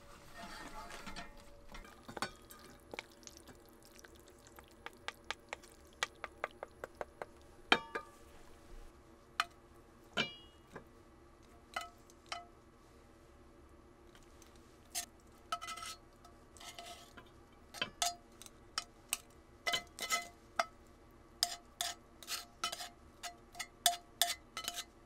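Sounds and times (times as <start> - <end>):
utensils and cookware clinking: 0.3 - 3.0, 7.7 - 8.2, 21.4 - 24.9.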